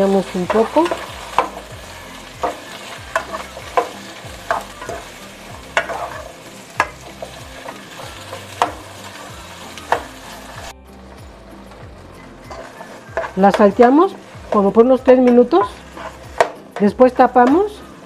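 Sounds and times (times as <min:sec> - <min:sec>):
potatoes sizzling in oil: 0:00.0 - 0:18.0
spoon clacking against pan: 0:00.2 - 0:09.2, 0:12.5 - 0:17.8.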